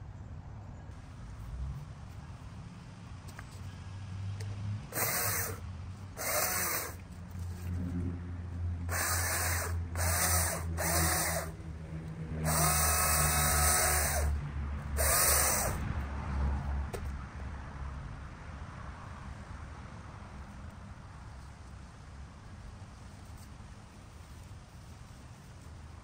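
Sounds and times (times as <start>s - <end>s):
hedge trimmer cutting shrubs: 4.8s - 8.0s, 8.8s - 15.9s.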